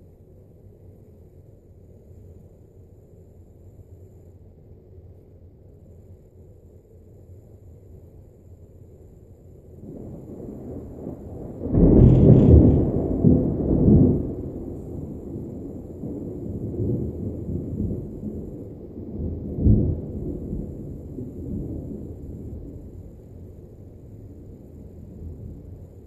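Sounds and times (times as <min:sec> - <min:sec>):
thunder crack and rumble: 0:09.7 - 0:26.0.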